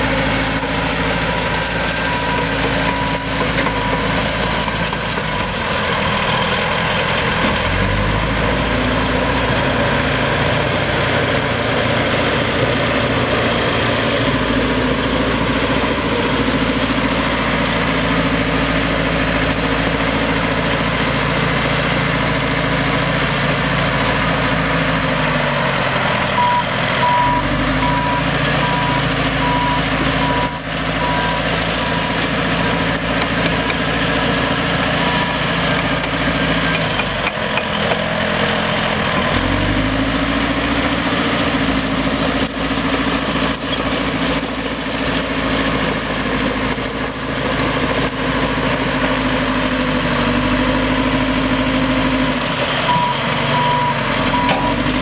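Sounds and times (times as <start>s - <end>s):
dozer diesel engine running hard: 0.0s - 55.0s.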